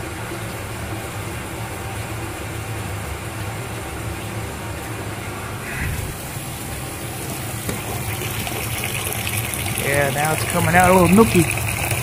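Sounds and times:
burner low rumble: 4.9s - 8.2s
water gushing into a bucket: 5.9s - 12.0s.

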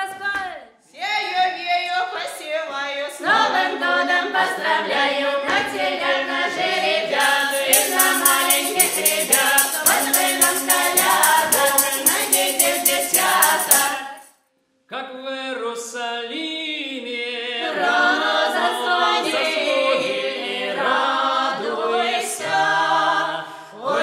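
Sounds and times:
ensemble singing a carol: 5.8s - 14.3s
tambourine shaken: 7.1s - 14.4s.

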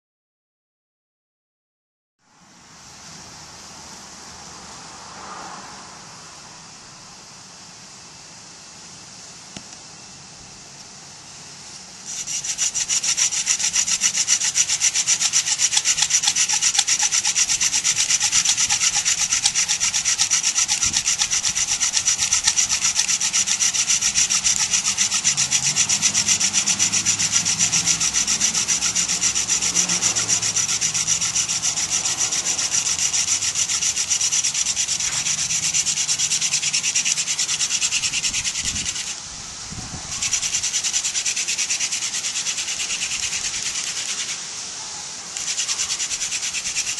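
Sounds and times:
hand drill spindle rubbing on wood: 12.0s - 39.2s, 40.0s - 44.4s, 45.4s - 46.9s.

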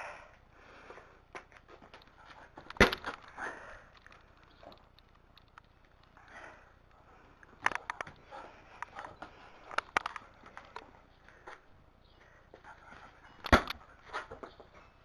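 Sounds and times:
clicks and scuffs: 0.9s - 15.0s
ball thump: 2.7s - 3.2s.

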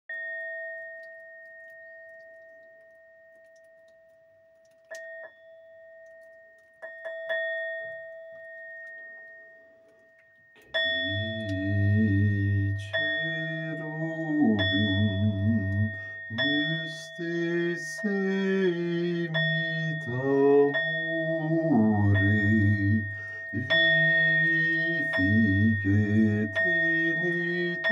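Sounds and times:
bell ringing: 4.9s - 27.9s
deep voice singing low notes: 10.9s - 27.9s.

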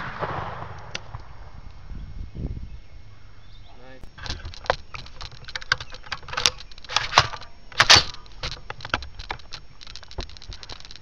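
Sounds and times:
sharp clicks and knocks: 4.0s - 11.0s.

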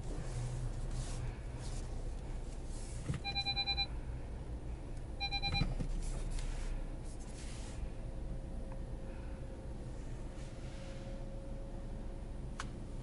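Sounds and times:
car engine idling: 0.0s - 13.0s
parking sensor beeps: 3.1s - 3.9s, 5.2s - 5.8s.

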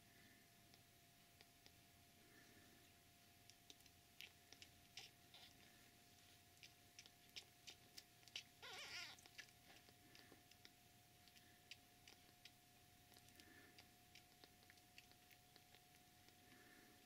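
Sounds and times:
kittens sucking wetly: 0.1s - 17.0s
kitten mewing: 3.7s - 5.8s, 6.6s - 16.8s.

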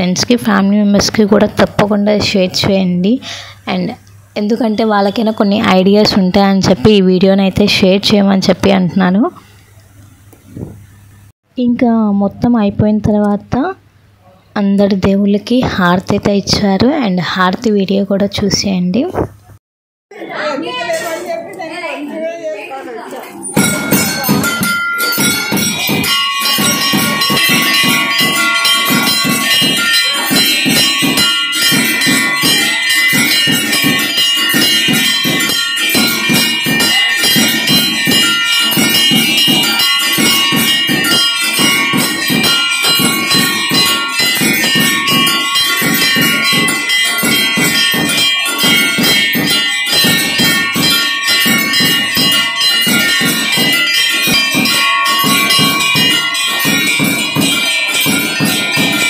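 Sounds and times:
temple bells clanging: 23.4s - 59.0s.

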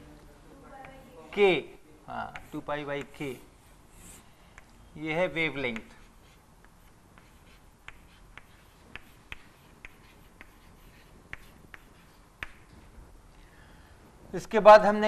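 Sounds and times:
chalk tapping on blackboard: 0.8s - 1.6s, 2.2s - 4.7s, 5.5s - 12.9s.

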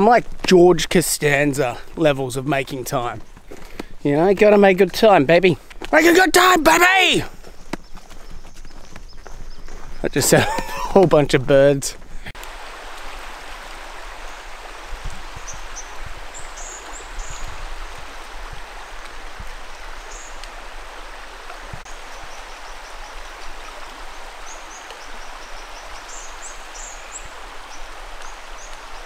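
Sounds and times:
small birds chirping: 1.3s - 11.3s, 14.2s - 17.7s, 19.6s - 20.6s, 21.8s - 29.0s.

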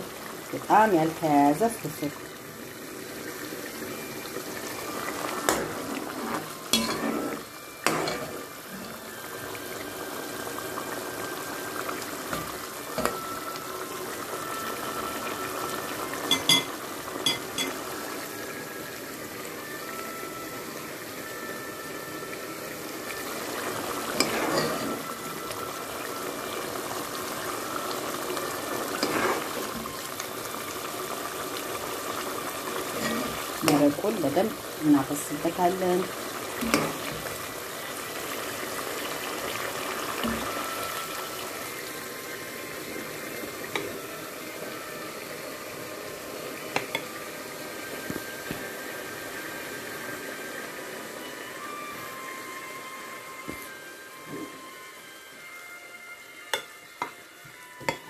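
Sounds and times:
spoon clinking against pot: 16.3s - 17.8s.

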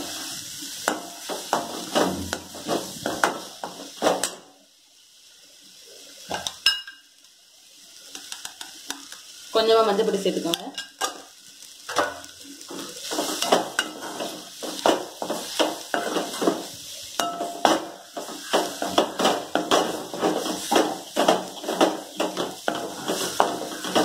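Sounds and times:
masala sizzling in oil: 0.0s - 24.0s
metal spatula scraping metal pan: 12.7s - 24.0s.

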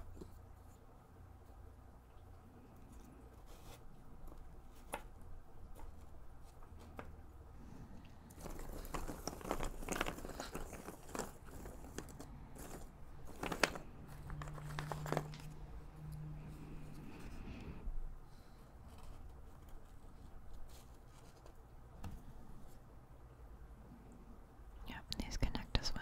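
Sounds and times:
fingers stirring puzzle pieces: 8.1s - 15.8s.

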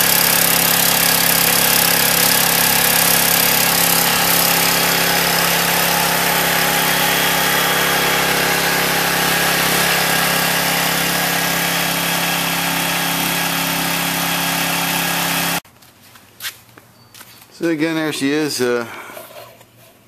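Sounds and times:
pressure washer engine running: 0.0s - 15.6s.

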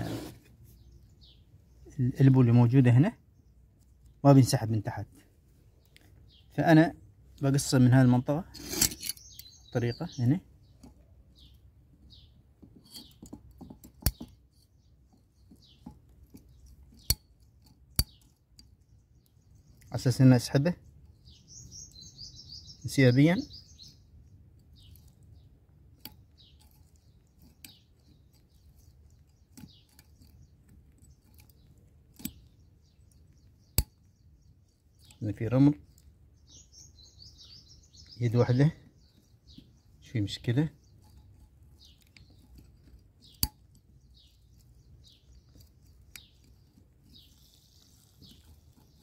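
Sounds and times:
faint bird chirps: 5.8s - 13.4s, 14.0s - 49.0s
pipe cutter clicks and snaps: 13.0s - 14.4s, 26.0s - 27.0s, 43.3s - 43.8s.

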